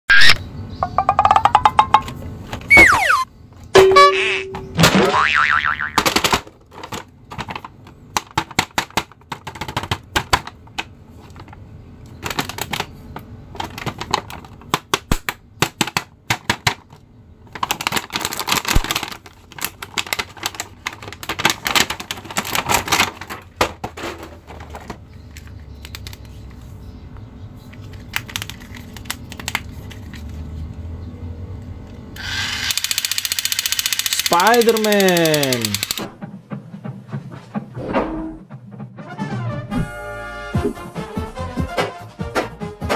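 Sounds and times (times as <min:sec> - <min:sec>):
plastic crackling: 0:10.6 - 0:26.3
plastic packaging clicks and snaps: 0:17.6 - 0:23.4.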